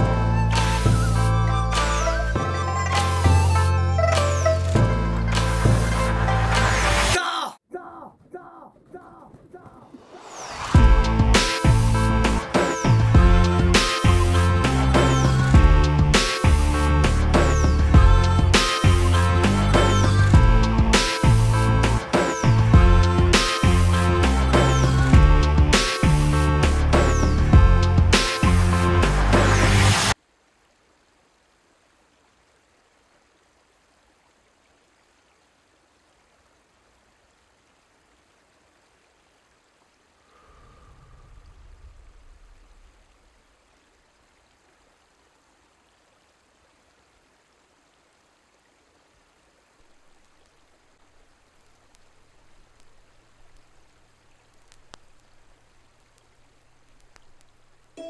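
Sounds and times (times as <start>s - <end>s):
faint steady hiss: 30.0s - 58.0s.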